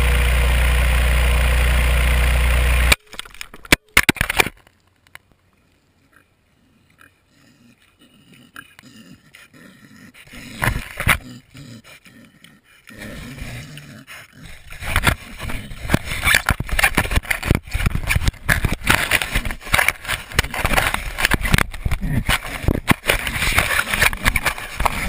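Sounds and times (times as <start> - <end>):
pig scraping against microphone: 7.4 - 25.0.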